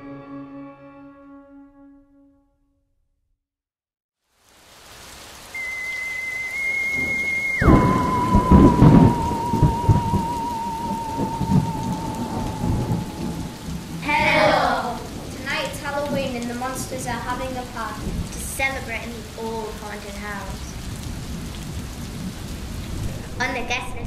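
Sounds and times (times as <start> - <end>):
steady rain: 4.2 - 24.0
eerie whistling tone: 5.5 - 14.6
heavy rolling thunder: 6.6 - 19.3, 20.8 - 23.5.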